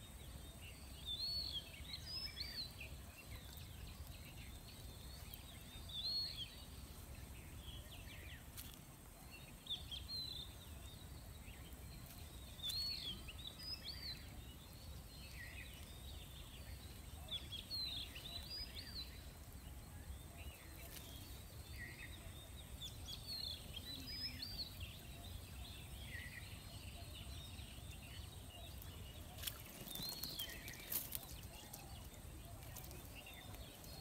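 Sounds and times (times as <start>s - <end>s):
bird chirping: 0.0s - 34.0s.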